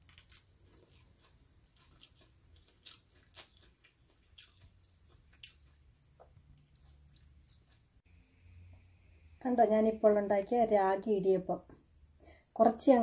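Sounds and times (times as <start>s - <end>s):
person chewing food: 0.0s - 8.1s.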